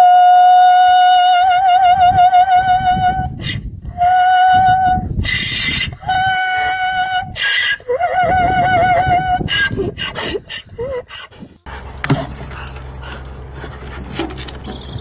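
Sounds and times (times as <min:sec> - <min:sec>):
high voice singing with vibrato: 0:00.0 - 0:05.2.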